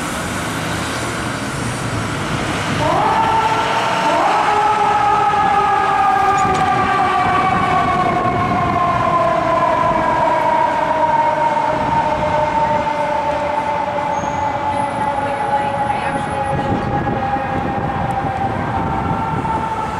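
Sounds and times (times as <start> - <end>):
fire engine siren wailing: 0.0 - 19.9.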